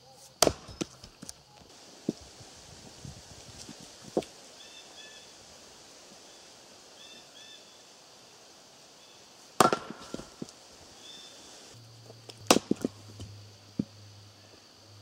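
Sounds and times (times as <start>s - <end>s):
axe splitting wood: 0.4s - 1.0s, 9.6s - 10.3s, 12.4s - 13.0s.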